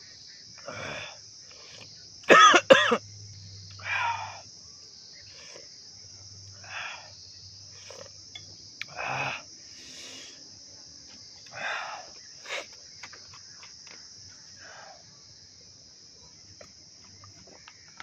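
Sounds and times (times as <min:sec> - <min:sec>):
insects chirping chorus: 0:00.0 - 0:18.0
rustling or slurping noises: 0:07.8 - 0:08.2.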